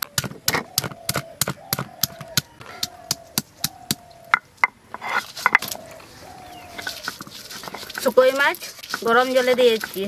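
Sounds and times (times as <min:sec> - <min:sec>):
stone grinding scrape: 0:04.9 - 0:05.9, 0:06.5 - 0:10.0.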